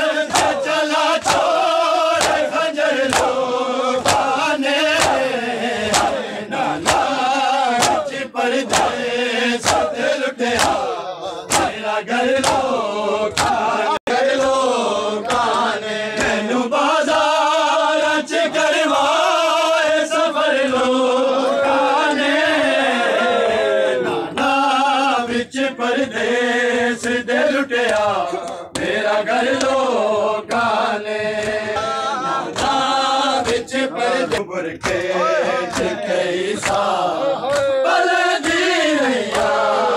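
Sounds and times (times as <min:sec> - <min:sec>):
men chanting a lament: 0:00.0 - 0:39.9
hands slapping bare chests: 0:00.2 - 0:16.4, 0:27.8 - 0:29.8, 0:30.5 - 0:37.8, 0:38.4 - 0:39.7.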